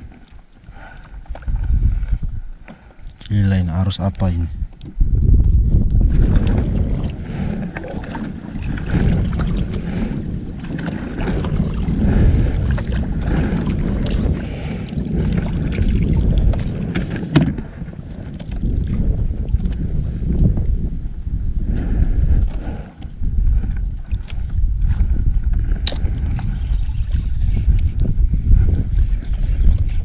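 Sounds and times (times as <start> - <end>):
water lapping against boat hull: 0.0 - 30.0
wind buffeting microphone: 0.0 - 30.0
low rumble: 4.4 - 16.9.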